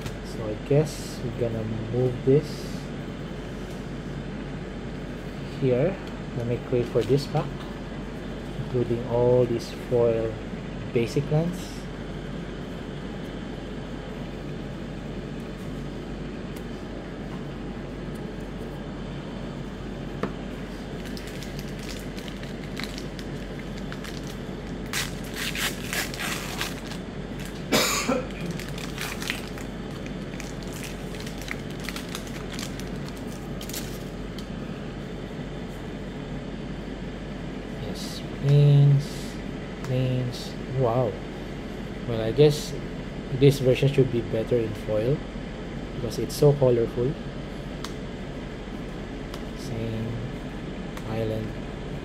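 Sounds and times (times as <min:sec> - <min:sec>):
room hum: 0:00.0 - 0:52.0
wrapper crinkling: 0:21.0 - 0:27.7, 0:28.3 - 0:34.1.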